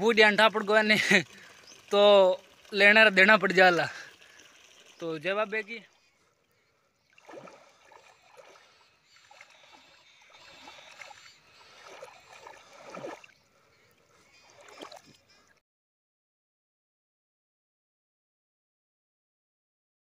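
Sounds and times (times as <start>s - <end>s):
water splashing from swimming: 0.2s - 15.6s.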